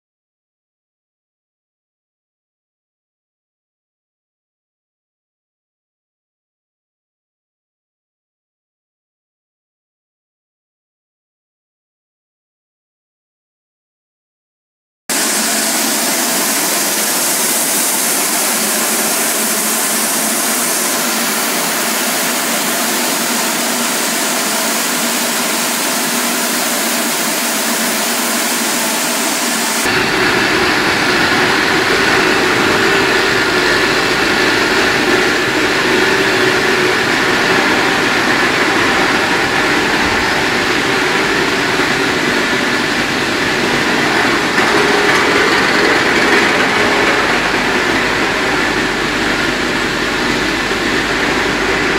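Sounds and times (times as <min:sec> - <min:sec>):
machine fans hissing: 0:15.1 - 0:51.9
deep machine hum with tones: 0:29.8 - 0:51.9.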